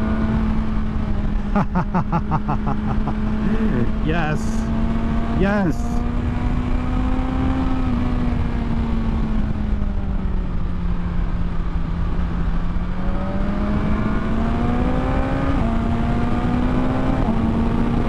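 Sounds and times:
motorcycle engine revving: 2.2s - 9.4s, 12.8s - 18.0s.

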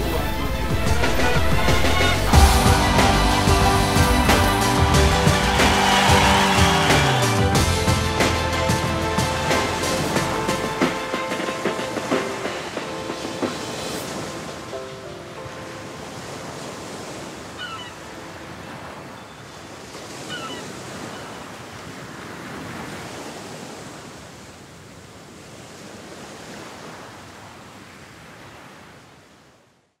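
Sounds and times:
surf breaking on rocky shore: 0.0s - 19.1s.

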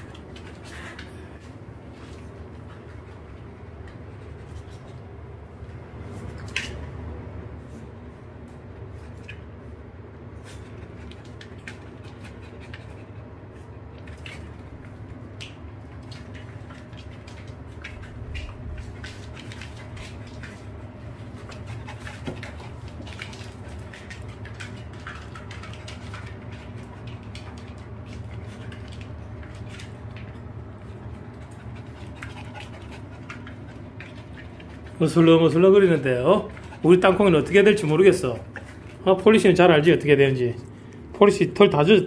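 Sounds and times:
dog claws clicking on floor: 0.0s - 7.0s, 10.5s - 41.0s
steady low hum: 0.0s - 42.0s.

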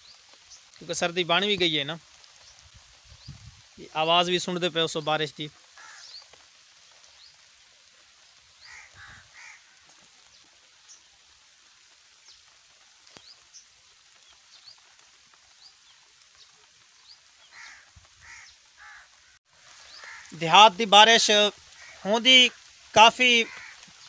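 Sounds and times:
small birds chirping: 0.0s - 3.8s, 5.7s - 20.6s
light rain hiss: 0.0s - 24.0s
crow cawing: 5.7s - 6.2s, 8.6s - 9.9s, 17.5s - 20.4s, 21.7s - 22.7s, 23.4s - 24.0s.

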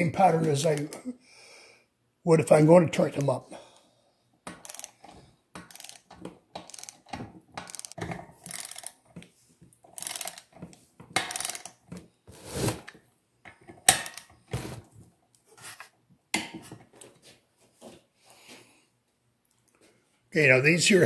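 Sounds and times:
socket ratchet clicking: 4.5s - 5.0s, 5.6s - 9.0s, 9.9s - 10.5s, 11.2s - 11.8s.

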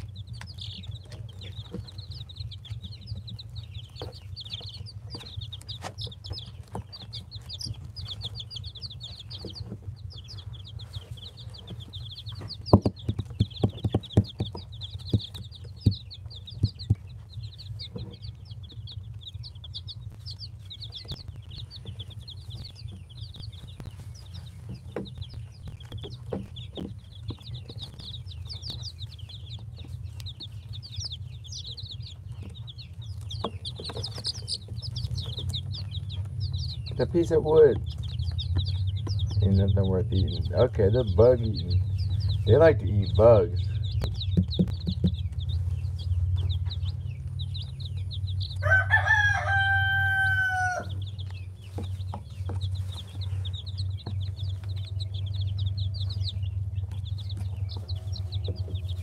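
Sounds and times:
steady low hum: 0.0s - 49.5s, 50.8s - 59.0s
chicks peeping: 0.0s - 59.0s
sharp taps: 11.6s - 17.2s, 43.9s - 45.5s.

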